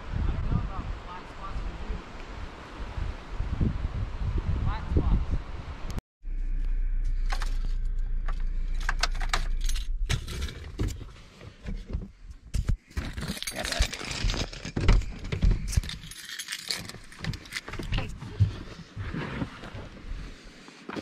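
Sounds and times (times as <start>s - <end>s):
car engine idling: 6.2s - 10.8s
car keys jangling and clicking: 8.7s - 10.8s, 13.1s - 18.0s.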